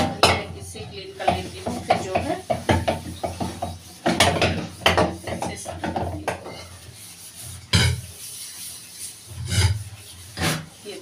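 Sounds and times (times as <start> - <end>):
metal bowl and utensils clattering: 0.0 - 11.0.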